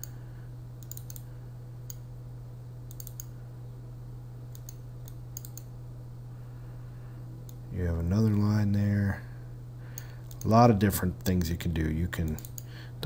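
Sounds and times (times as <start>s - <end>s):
steady low hum: 0.0s - 13.0s
computer mouse clicks: 0.8s - 1.3s, 2.9s - 3.3s, 4.5s - 5.7s, 10.0s - 10.5s, 12.2s - 12.7s.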